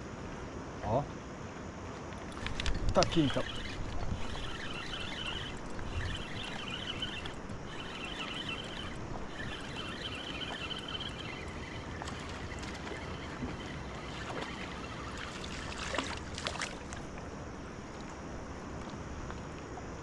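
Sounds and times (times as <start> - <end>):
sharp clicks: 2.2 - 13.7
high chirring: 2.4 - 16.3.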